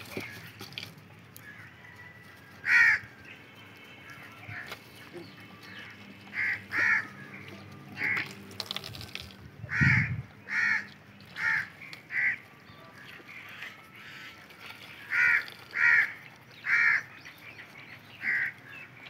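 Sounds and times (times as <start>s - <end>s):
milk splashing into tray: 8.0s - 9.4s.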